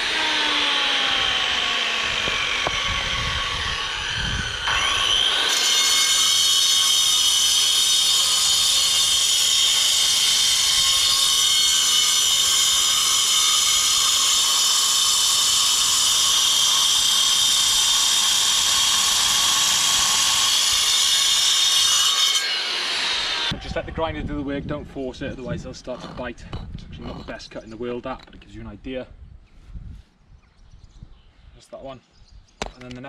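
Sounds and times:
angle grinder cutting concrete: 0.0 - 23.8.

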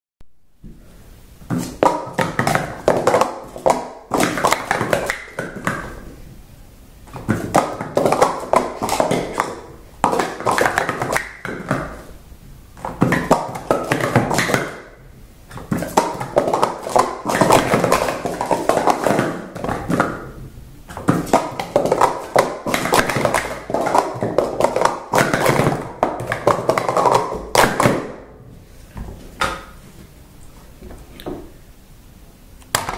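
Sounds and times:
plastic cups clacking on mat: 1.4 - 6.2, 7.0 - 12.2, 12.8 - 28.3.

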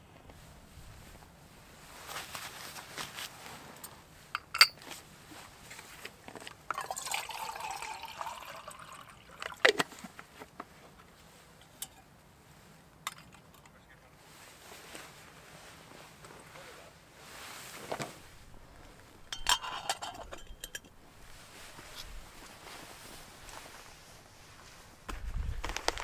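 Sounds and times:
liquid pouring: 6.7 - 9.8
metal clicks and clinks: 19.4 - 21.0.

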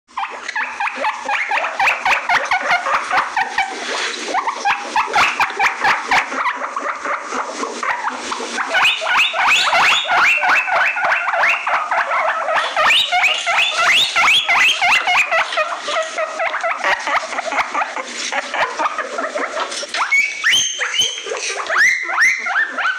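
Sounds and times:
guinea pig squealing: 0.1 - 22.9.

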